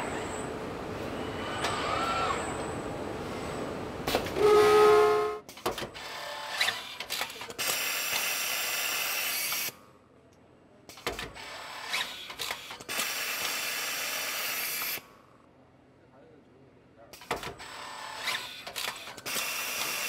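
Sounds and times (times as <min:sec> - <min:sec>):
robotic tool clicks and clunks: 0:06.6 - 0:08.2, 0:10.9 - 0:13.6, 0:17.2 - 0:17.6, 0:18.2 - 0:20.0.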